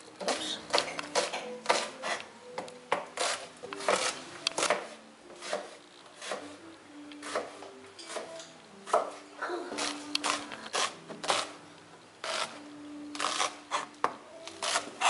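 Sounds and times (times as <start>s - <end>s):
knife chopping on plastic board: 0.2s - 6.5s, 7.2s - 9.2s.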